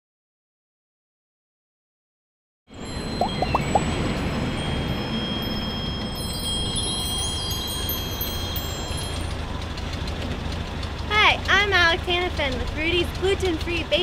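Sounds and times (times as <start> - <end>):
high ringing chime tones: 2.8 - 9.3
glittering high chimes: 2.8 - 9.4.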